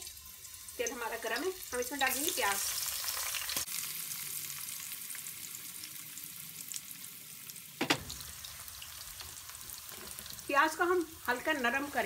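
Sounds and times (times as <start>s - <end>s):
onions sizzling in oil: 0.0s - 12.0s
loud knock: 7.8s - 8.2s.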